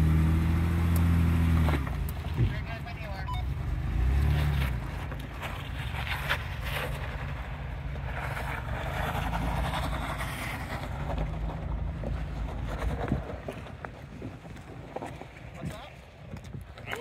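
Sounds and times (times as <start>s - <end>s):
engine running low and steady: 0.0s - 13.7s
tyres on sand and grit: 3.8s - 17.0s.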